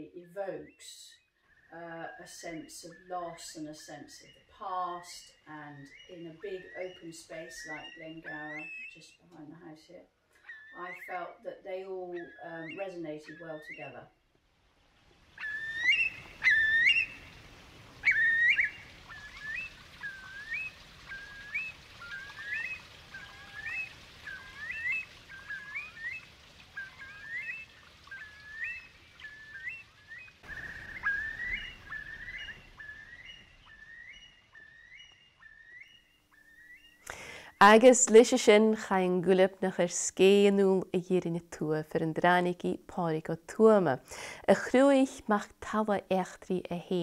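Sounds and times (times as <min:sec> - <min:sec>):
soft outdoor hiss: 0:00.0 - 0:47.0
curlew calling: 0:00.4 - 0:09.3, 0:10.4 - 0:14.2, 0:15.3 - 0:37.8.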